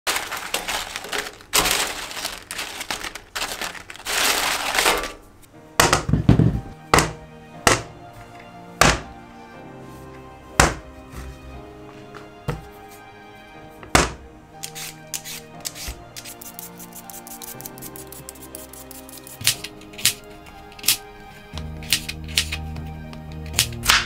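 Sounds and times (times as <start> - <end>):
potato chips crackling and rustling: 0.0 - 5.3
potatoes thunking on plastic board: 5.8 - 7.9, 8.8 - 9.1, 10.6 - 10.9, 13.8 - 14.2.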